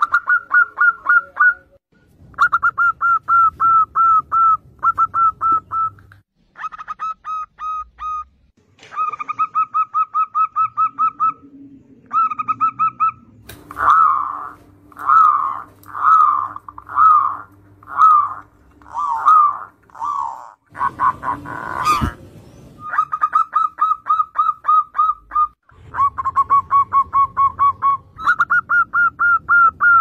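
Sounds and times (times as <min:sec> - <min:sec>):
doves cooing: 0:00.0 - 0:01.8, 0:08.9 - 0:30.0.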